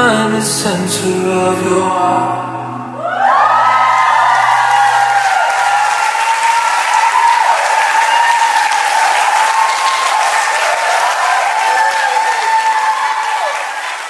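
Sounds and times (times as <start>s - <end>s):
cheering voices: 2.7s - 14.0s
steady applause: 3.0s - 14.0s.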